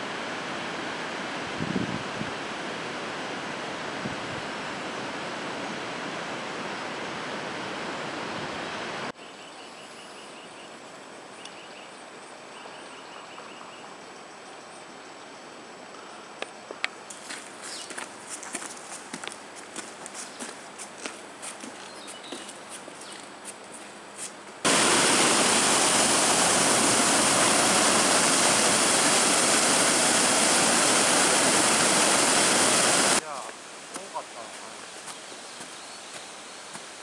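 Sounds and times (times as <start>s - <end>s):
faint bird chirps: 9.2s - 15.4s
footsteps on gravel: 17.1s - 24.4s, 33.9s - 37.0s
running water rushing: 24.6s - 37.0s.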